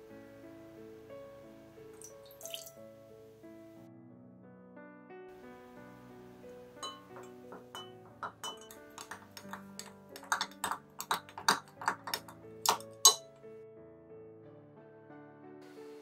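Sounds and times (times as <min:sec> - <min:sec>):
spoon clinking in glass jug: 0:02.0 - 0:02.7, 0:06.8 - 0:13.3
soft instrumental music: 0:04.8 - 0:13.8, 0:15.0 - 0:16.0.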